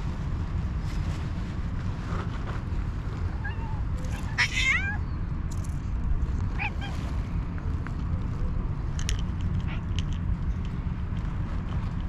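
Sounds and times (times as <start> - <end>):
wind rumble on microphone: 0.0 - 12.0
cat meowing: 3.4 - 5.0, 6.6 - 7.0.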